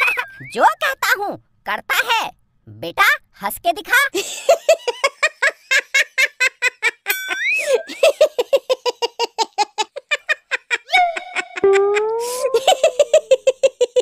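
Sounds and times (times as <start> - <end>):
cartoon child's voice laughing: 9.6 - 14.0.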